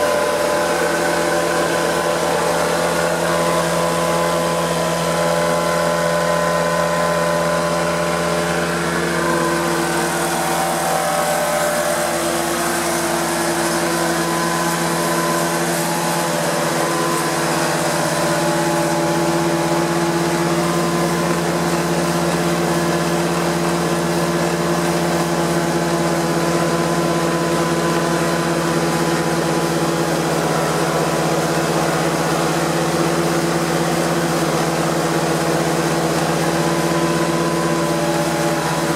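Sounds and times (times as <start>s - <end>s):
carpet cleaner engine drone: 0.0s - 38.9s.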